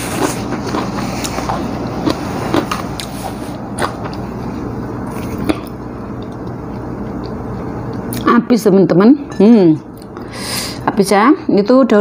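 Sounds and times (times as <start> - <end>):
person chewing: 0.0 - 8.2
low background hum: 0.0 - 12.0.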